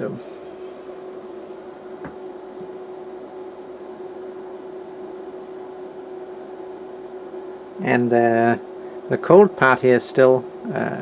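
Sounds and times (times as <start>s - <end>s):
steady machine hum: 0.0s - 11.0s.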